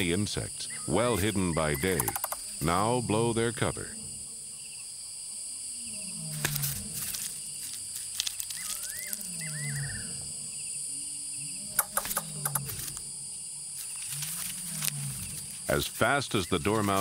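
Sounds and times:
insect trilling: 0:00.0 - 0:17.0
low falling animal call: 0:08.5 - 0:10.4.

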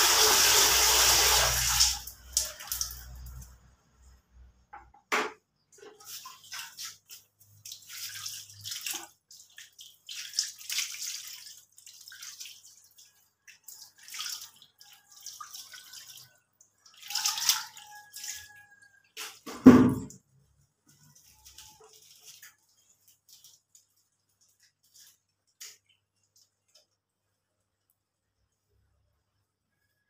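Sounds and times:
water splashing on tiled floor: 0:00.0 - 0:04.2, 0:05.8 - 0:27.0.

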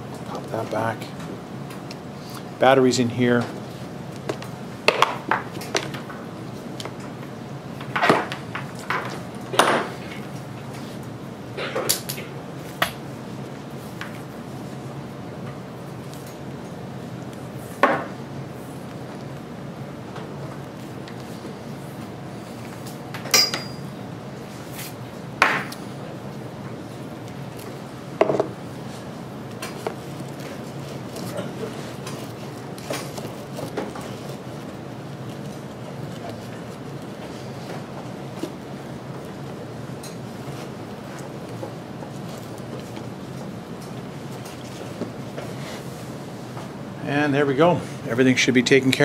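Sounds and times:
low room hum: 0:00.0 - 0:49.0
cables being gathered: 0:25.9 - 0:46.8
scraping rustling handling noises: 0:26.4 - 0:46.7.

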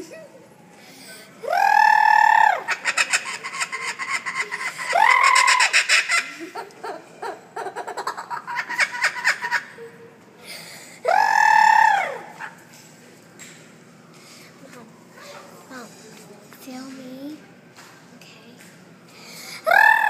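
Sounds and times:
kookaburra calling: 0:01.4 - 0:06.5.

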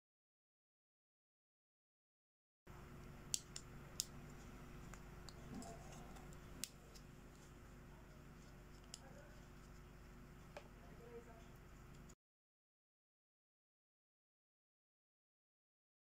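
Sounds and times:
faint room noise: 0:02.7 - 0:12.2.

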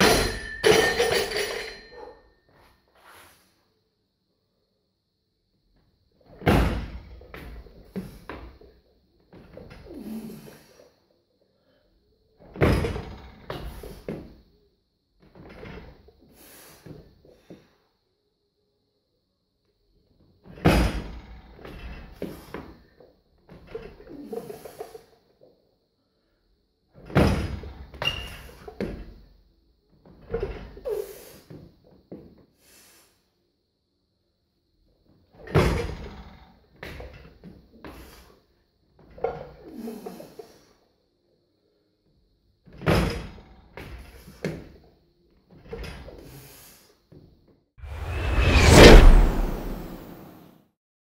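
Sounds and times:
whooshing sound effect: 0:47.8 - 0:50.5.

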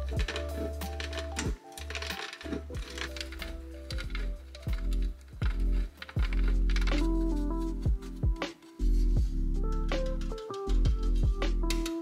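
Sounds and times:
instrumental music with drum beat: 0:04.0 - 0:12.0.

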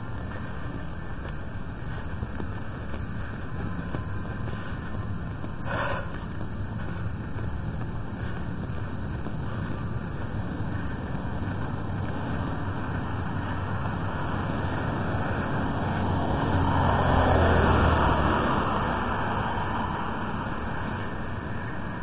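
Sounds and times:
car passing by: 0:12.3 - 0:22.0.

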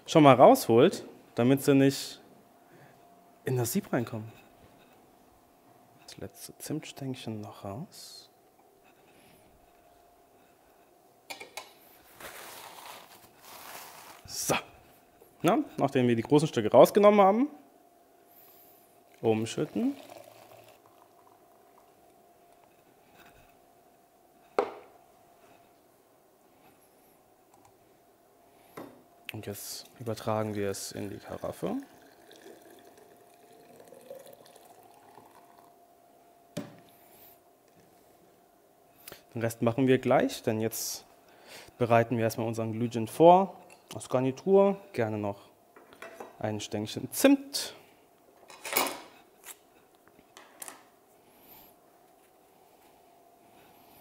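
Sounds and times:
faint steady hum: 0:00.0 - 0:54.0
liquid trickling and dripping: 0:30.5 - 0:35.7.

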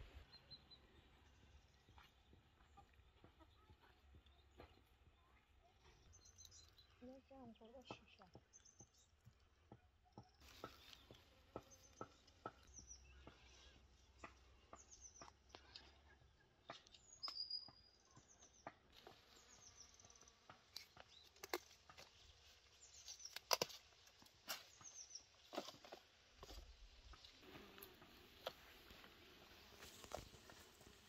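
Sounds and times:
birds chirping: 0:00.0 - 0:31.0
leaves and stems rustling: 0:10.4 - 0:12.1, 0:19.0 - 0:31.0
peppers snapping off plants: 0:20.6 - 0:22.2, 0:23.0 - 0:24.9.

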